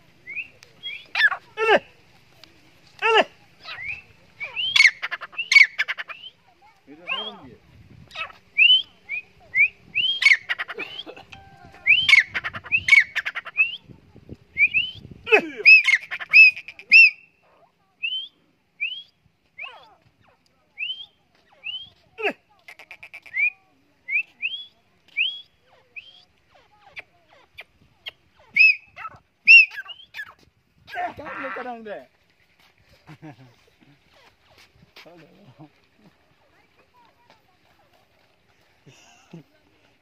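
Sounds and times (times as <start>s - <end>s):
bird whistling rising notes: 8.6s - 13.0s.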